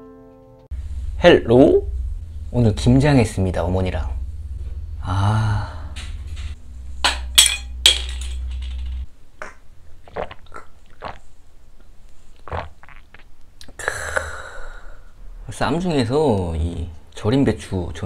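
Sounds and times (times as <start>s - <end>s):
low hum: 0.7s - 10.0s, 13.8s - 17.2s
breathy exhale: 5.0s - 6.1s, 13.8s - 15.2s
shot glass clinking: 7.1s - 8.7s
mouth clicks sipping and swallowing: 9.4s - 11.3s, 12.3s - 13.8s.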